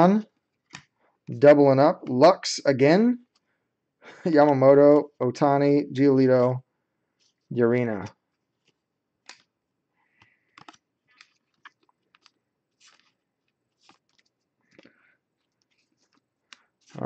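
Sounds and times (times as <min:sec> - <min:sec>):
faint clicks and taps: 0:08.0 - 0:17.0.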